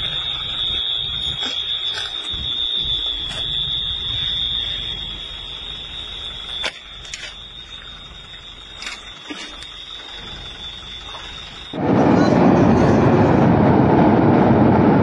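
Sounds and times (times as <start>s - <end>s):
high-pitched alarm tone: 0.0s - 14.4s
low rumble: 11.6s - 15.0s.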